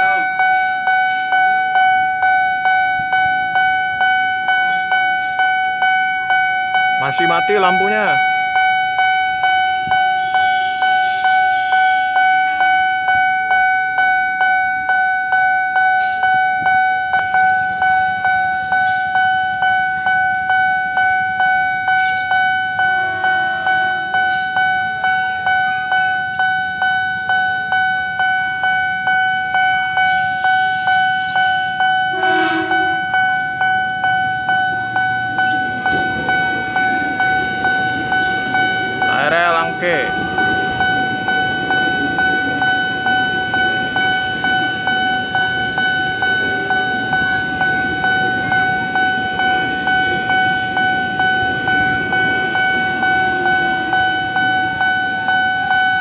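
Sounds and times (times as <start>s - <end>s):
level crossing bell ringing: 0.0s - 56.0s
train rumbling: 0.0s - 56.0s
train horn blasting: 22.8s - 24.5s, 30.1s - 33.3s.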